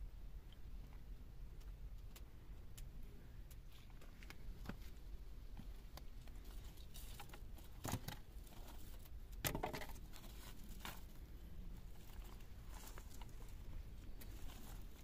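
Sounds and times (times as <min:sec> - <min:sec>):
feet shifting on dirt and stones: 0:09.9 - 0:15.0.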